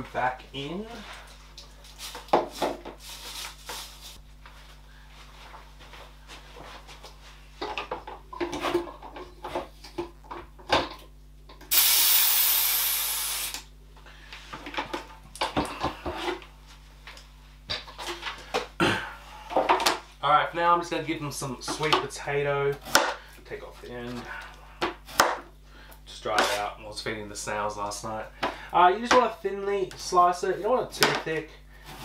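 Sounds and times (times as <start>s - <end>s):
pressure sprayer hissing: 11.7s - 13.6s.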